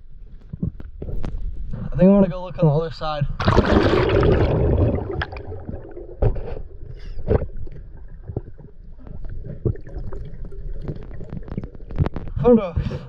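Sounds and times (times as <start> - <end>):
underwater clicks and knocks: 5.1 - 12.4.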